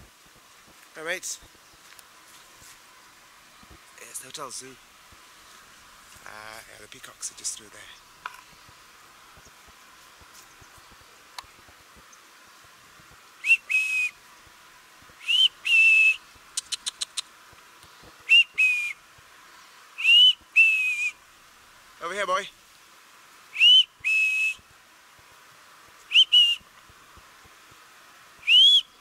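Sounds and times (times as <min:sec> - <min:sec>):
man whistling two-note calls: 0:13.4 - 0:14.2, 0:15.2 - 0:16.2, 0:18.3 - 0:19.0, 0:20.0 - 0:21.2, 0:23.6 - 0:24.6, 0:26.1 - 0:26.6, 0:28.4 - 0:29.0
quick clicks: 0:16.6 - 0:17.9.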